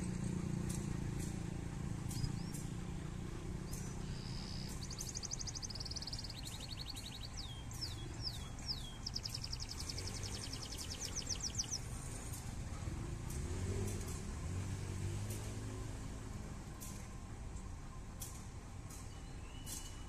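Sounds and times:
bird singing trills: 0:00.7 - 0:12.5, 0:18.9 - 0:20.0.

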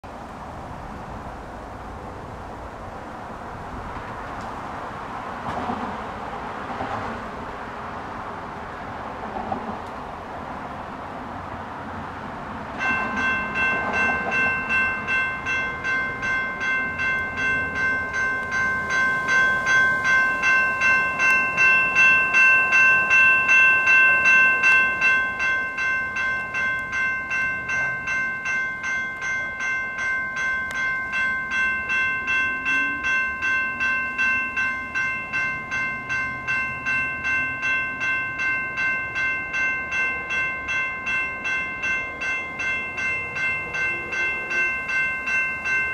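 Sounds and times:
electronic crossing bells ringing: 0:12.7 - 0:45.9.

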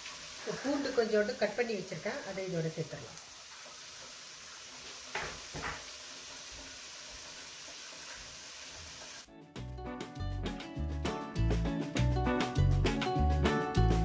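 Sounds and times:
onions sizzling in a pan: 0:00.0 - 0:09.3
background music with a beat: 0:09.4 - 0:14.0.

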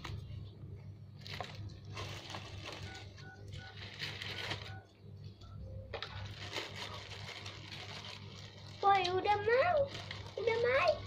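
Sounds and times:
steady low hum: 0:00.0 - 0:11.0
paper wrapping rustling: 0:01.2 - 0:03.2, 0:03.8 - 0:04.7, 0:06.1 - 0:11.0.

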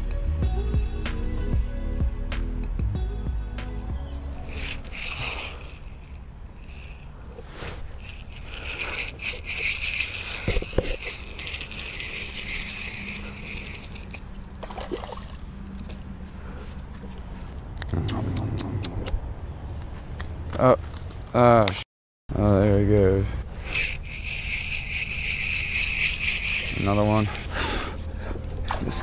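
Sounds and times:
insects chirping: 0:00.0 - 0:29.0
fish splashing out of water: 0:14.6 - 0:15.4.

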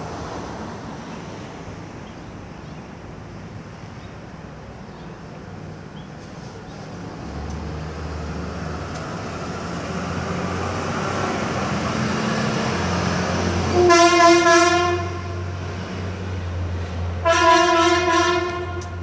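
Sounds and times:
ambulance driving past: 0:06.2 - 0:19.0
ambulance horn blasts: 0:13.7 - 0:15.6, 0:17.2 - 0:19.0.

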